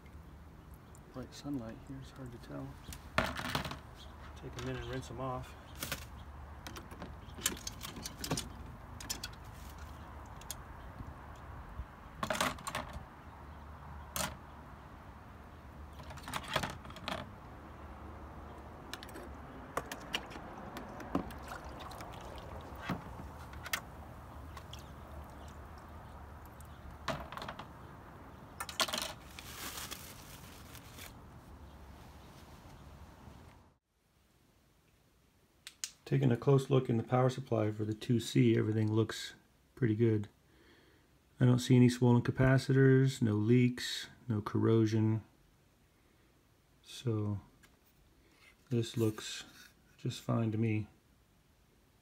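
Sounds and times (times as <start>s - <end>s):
cling wrap crinkling: 28.6s - 32.4s.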